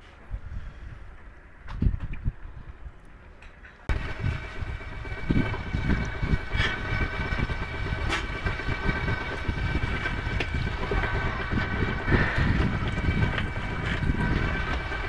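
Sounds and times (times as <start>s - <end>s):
electric motor whine: 3.9s - 15.0s
low rushing noise: 3.9s - 15.0s.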